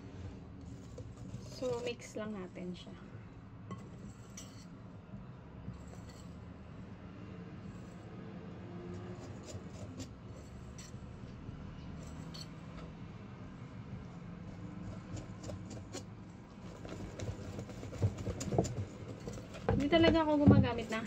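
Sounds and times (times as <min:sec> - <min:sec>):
whisk scraping batter: 0:00.6 - 0:02.2, 0:14.8 - 0:21.0.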